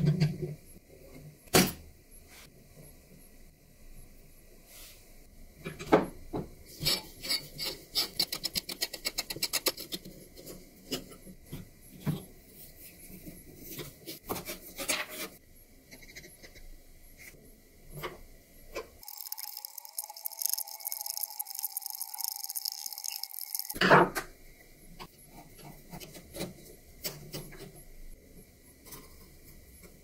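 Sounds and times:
steady hiss with held tone: 17.1 - 25.0.

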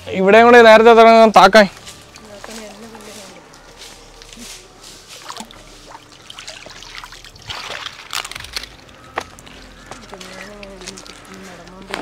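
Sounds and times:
water trickling and sloshing: 1.7 - 9.0
water splashing: 5.0 - 8.7.

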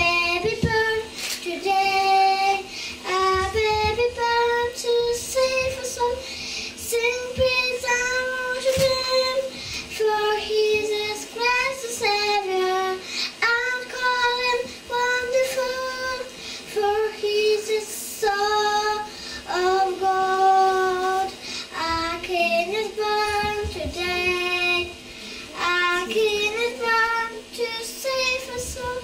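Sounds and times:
girl singing into a microphone: 0.0 - 29.0.

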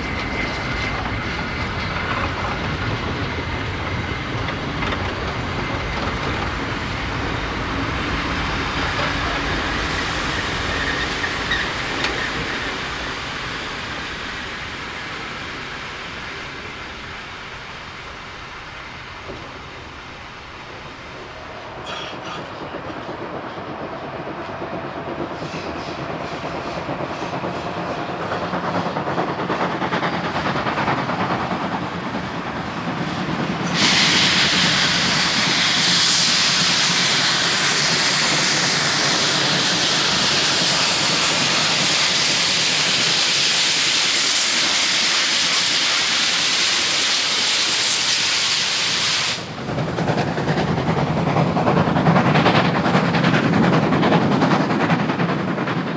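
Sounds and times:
steam locomotive starting under load: 32.9 - 53.5
steam hissing from drain cocks: 33.6 - 49.6.

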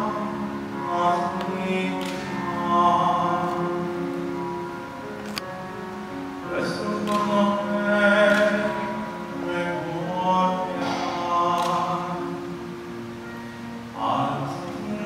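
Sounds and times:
man singing into microphone: 0.0 - 4.4, 6.4 - 12.7, 13.9 - 15.0.

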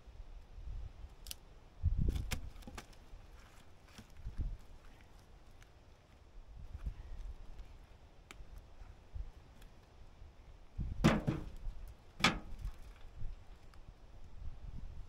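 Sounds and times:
firewood knocking into wheelbarrow: 11.0 - 12.8.

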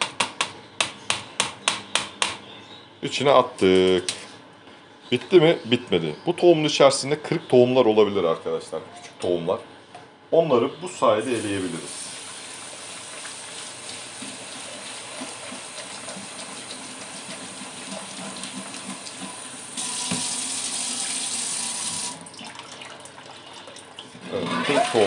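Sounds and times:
tap water splashing into sink: 15.2 - 23.3.

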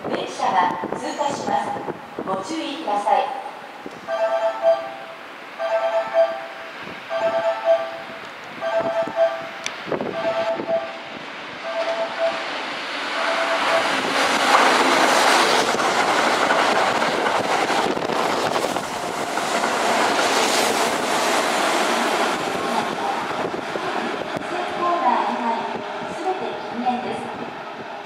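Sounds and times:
repeating beeping tone: 4.1 - 11.0, 11.6 - 12.5, 13.2 - 14.0
train wheels rushing past: 5.6 - 28.0.

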